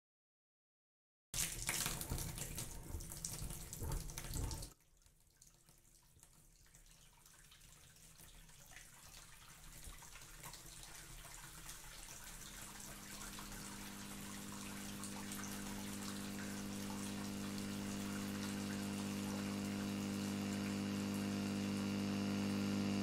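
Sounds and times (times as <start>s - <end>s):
tap running into sink: 1.4s - 4.8s.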